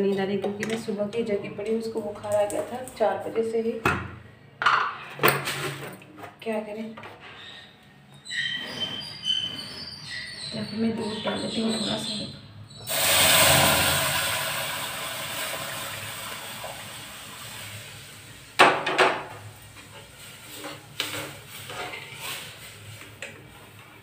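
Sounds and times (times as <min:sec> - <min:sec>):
milk sizzling in hot pan: 0:12.9 - 0:23.4.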